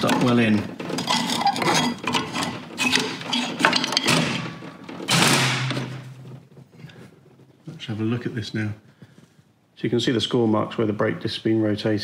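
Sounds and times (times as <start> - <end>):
screwdriver clicking and scraping metal: 0.9 - 4.2.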